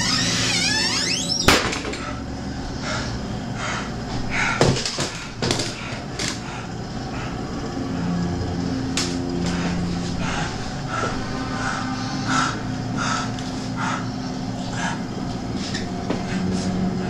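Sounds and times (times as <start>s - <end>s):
low steady hum: 5.4s - 17.0s.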